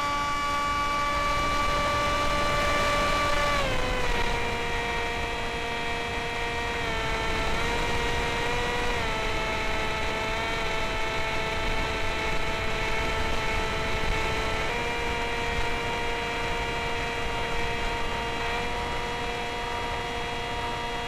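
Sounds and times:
electric motor and propeller whining: 0.0s - 21.0s
wind noise: 0.0s - 21.0s.

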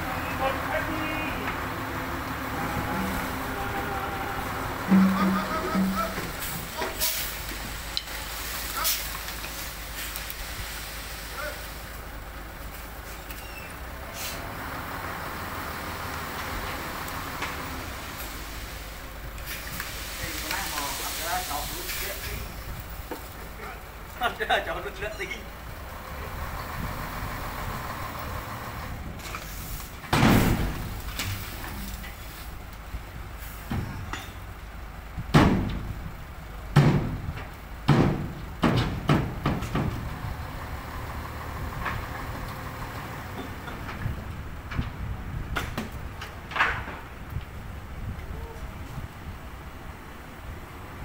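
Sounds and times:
dump truck engine running: 0.0s - 51.0s
sharp knocks: 4.9s - 7.0s, 36.8s - 37.2s, 37.9s - 40.0s
soil pouring from truck bed: 6.2s - 13.3s, 15.8s - 23.7s, 29.2s - 32.8s
loud bang: 30.2s - 30.9s.

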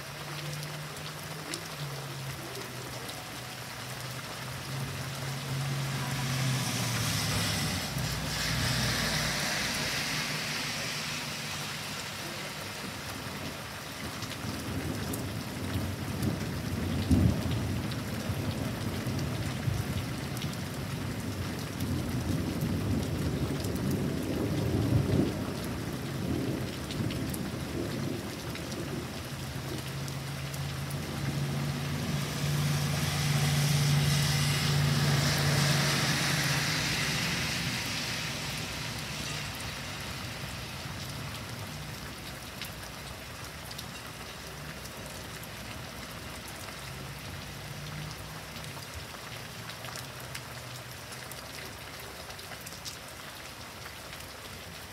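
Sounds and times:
tyre hiss on wet road: 0.0s - 14.9s, 28.4s - 54.9s
heavy rain: 0.0s - 54.9s.

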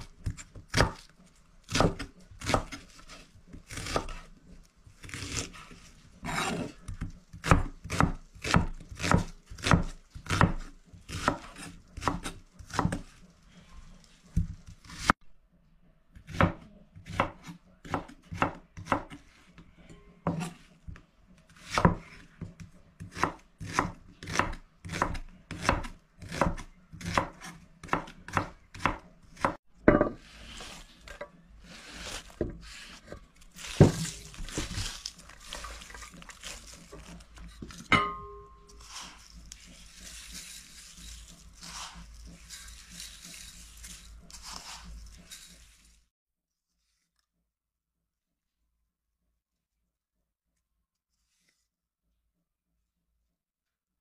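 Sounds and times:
knife slicing onion on board: 0.0s - 13.2s, 16.2s - 19.4s, 21.5s - 45.7s
onion scraped off board: 5.0s - 13.2s, 23.1s - 37.9s, 38.7s - 46.0s.

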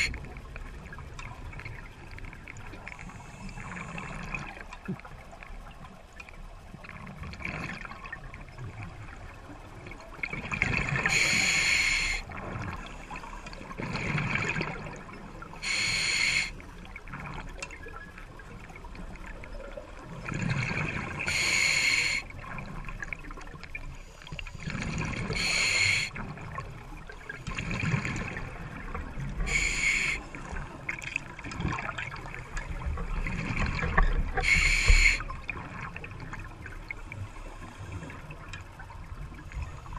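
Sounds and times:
exhaled bubbles rumbling: 0.0s - 11.3s, 12.2s - 15.6s, 16.7s - 21.4s, 22.2s - 39.9s
scuba regulator hissing inhalation: 11.1s - 12.2s, 15.6s - 16.6s, 21.3s - 22.2s, 25.3s - 26.1s, 29.4s - 30.3s, 34.4s - 35.2s.

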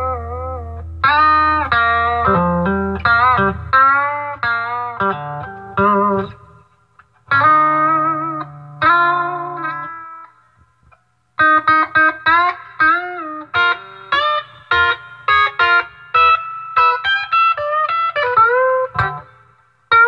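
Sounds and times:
low steady hum: 0.0s - 9.9s
electric guitar playing: 0.0s - 10.4s, 11.4s - 20.0s.

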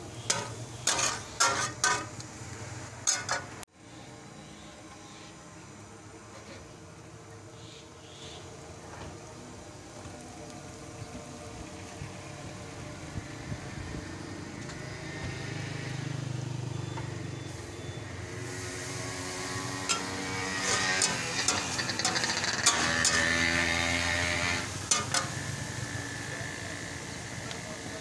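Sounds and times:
egg sizzling on a griddle: 0.0s - 3.7s, 4.7s - 28.0s
spatula striking griddle: 0.2s - 2.2s, 3.0s - 3.6s, 19.8s - 25.4s
vehicle rumbling past: 10.7s - 27.4s.

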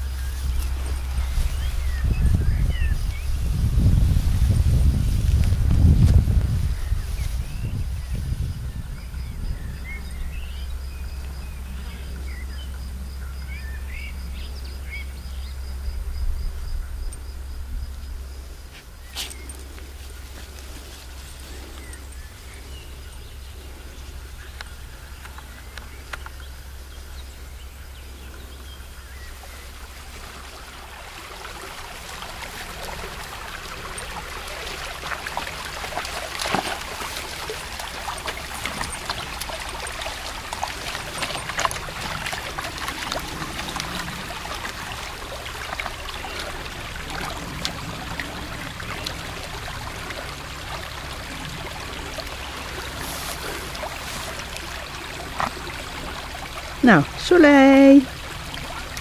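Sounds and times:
stream trickling over stones: 0.0s - 59.0s
dog splashing in water: 29.8s - 59.0s
dog drinking: 32.0s - 48.4s.

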